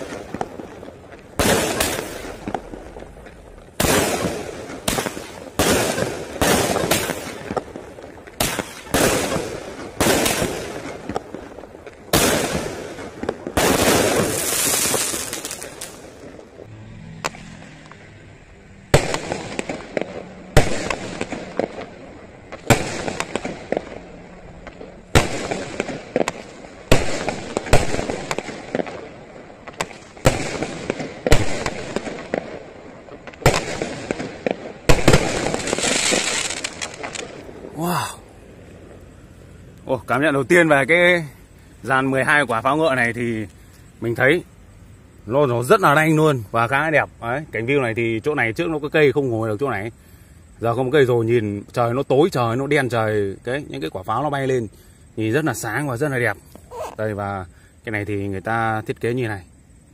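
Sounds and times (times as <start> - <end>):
fireworks bangs with crackling: 0.0 - 18.1, 18.8 - 38.2.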